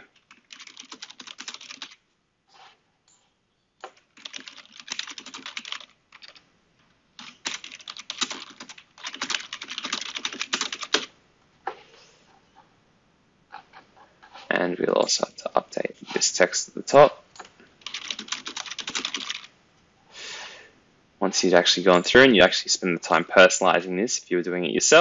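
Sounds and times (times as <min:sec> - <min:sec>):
rapid keyboard typing: 0:00.0 - 0:02.0, 0:03.8 - 0:06.4, 0:07.2 - 0:11.2, 0:17.4 - 0:19.5.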